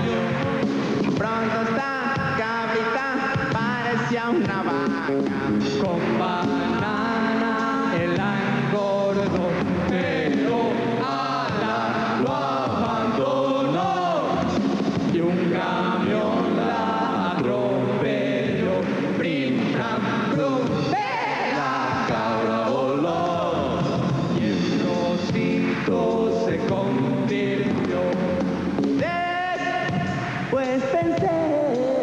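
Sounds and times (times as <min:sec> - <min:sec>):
live band playing: 0:00.0 - 0:32.0
voices chanting: 0:19.8 - 0:23.8.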